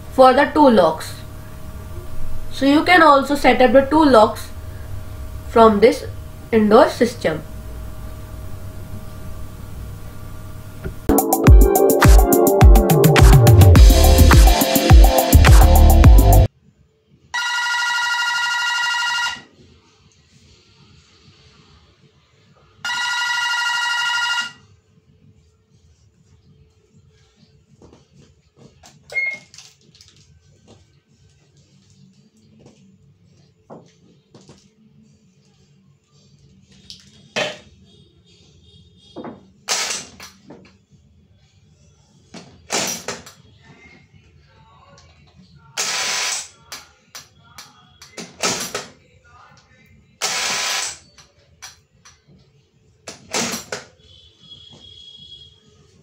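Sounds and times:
warbling electronic ringtone: 0:22.9 - 0:24.6.

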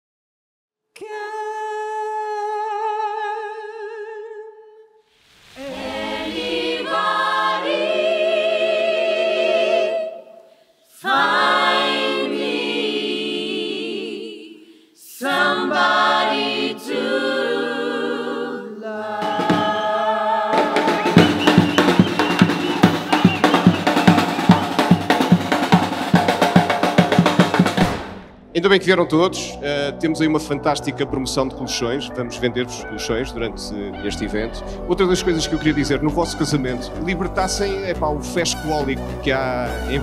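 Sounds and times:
solo voice singing long notes: 0:05.6 - 0:06.6
choir singing held chords: 0:05.6 - 0:28.1
sharp percussive hits: 0:20.6 - 0:28.5.

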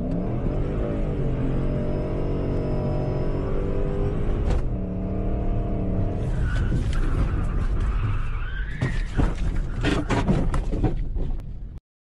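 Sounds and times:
car engine from cabin: 0:00.0 - 0:08.0
tire squeal: 0:06.2 - 0:10.3.

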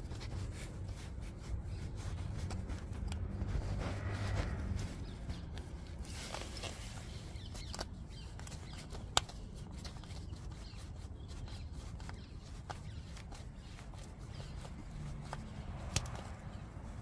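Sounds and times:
clicks and scrapes on engine parts: 0:00.0 - 0:17.0
fabric rubbing near microphone: 0:00.0 - 0:17.0.

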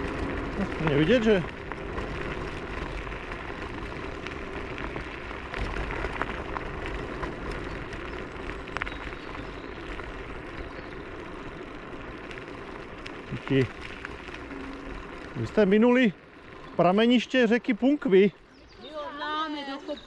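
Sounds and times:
tyre and wind noise: 0:00.0 - 0:17.4
small clicks and knocks over bumps: 0:00.0 - 0:19.1.

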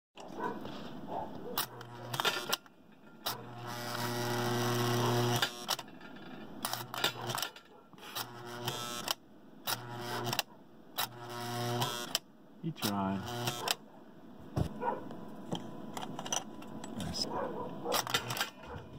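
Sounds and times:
electric mechanism buzzing: 0:01.6 - 0:05.9, 0:06.5 - 0:13.8
sharp clicks and clatters: 0:05.2 - 0:07.8, 0:17.9 - 0:18.8.

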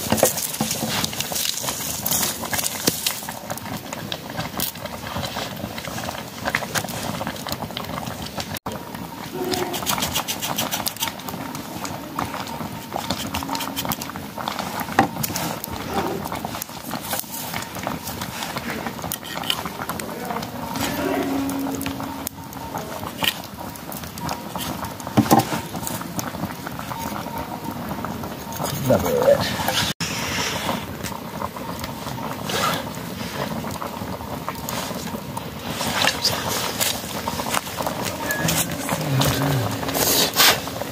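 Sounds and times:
crackling wood fire: 0:00.0 - 0:40.9
pot of rice boiling: 0:00.0 - 0:40.9
sickle cutting and scraping: 0:09.5 - 0:11.1.

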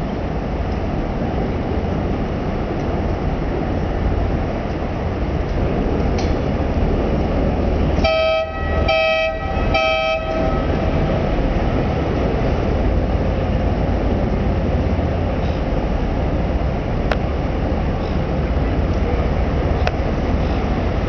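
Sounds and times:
harbour background: 0:00.0 - 0:21.0
boat horn blasts: 0:08.0 - 0:11.0.

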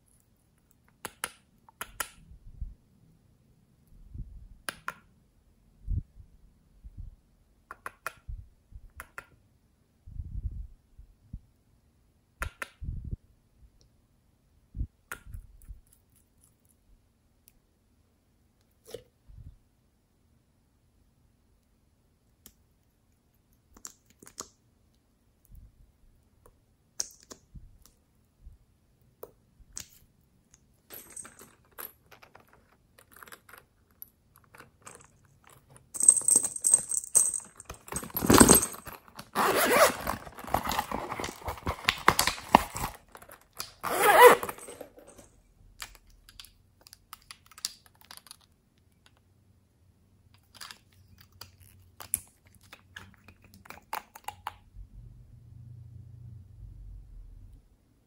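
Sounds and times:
fabric pouch rustling: 0:36.0 - 0:45.3
plastic cosmetics clicking: 0:45.8 - 0:49.3.

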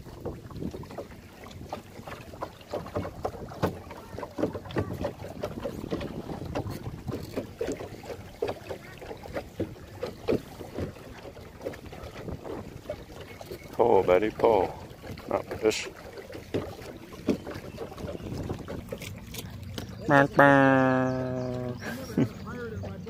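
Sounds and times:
wind on microphone: 0:00.0 - 0:02.0, 0:02.9 - 0:13.6, 0:17.2 - 0:19.2
water lapping against boat hull: 0:00.0 - 0:23.0.

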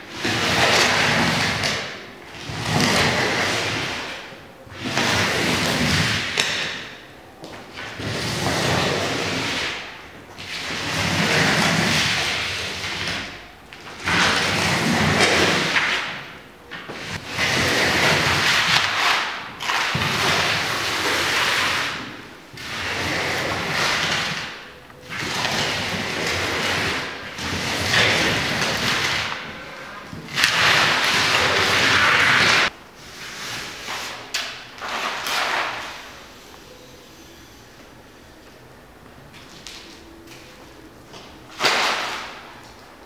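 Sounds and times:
soil scraping on paper: 0:07.8 - 0:13.4, 0:16.9 - 0:29.7, 0:30.4 - 0:36.1.

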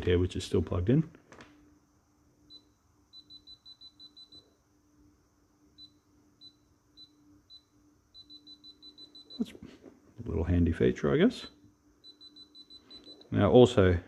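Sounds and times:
high-pitched voltage detector beeps: 0:02.5 - 0:04.6, 0:05.7 - 0:09.6, 0:11.3 - 0:13.7.

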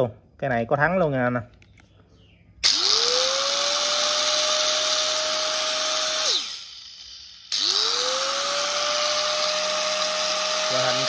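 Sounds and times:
angle grinder motor whine: 0:02.6 - 0:11.0.

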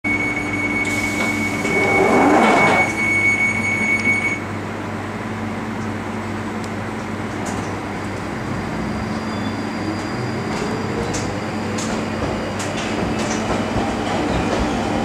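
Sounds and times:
high door warning tone: 0:00.1 - 0:04.5
train humming: 0:00.2 - 0:15.0
sliding train doors shutting: 0:00.8 - 0:03.1, 0:09.0 - 0:15.0.

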